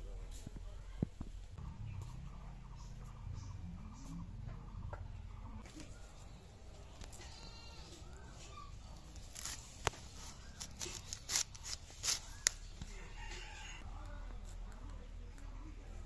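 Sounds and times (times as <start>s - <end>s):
cauliflower leaves snapping: 8.8s - 12.7s.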